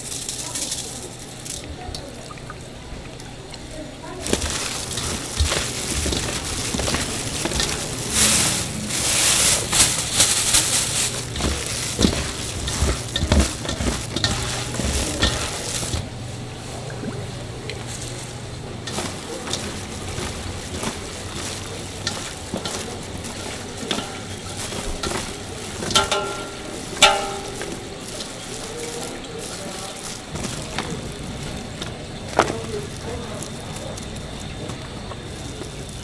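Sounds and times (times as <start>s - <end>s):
plastic glove rustling: 0.0s - 2.7s, 3.7s - 36.0s
wet squelching: 0.0s - 36.0s
metal bowl knocked ringing: 26.0s - 27.8s.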